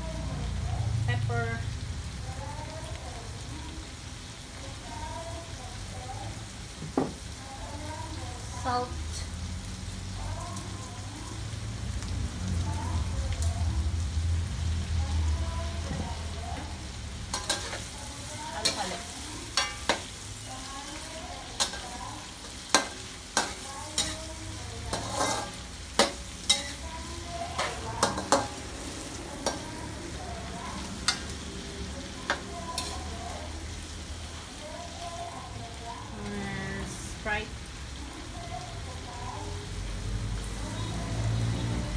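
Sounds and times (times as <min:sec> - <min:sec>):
shrimp sizzling in a wok: 0:00.0 - 0:41.9.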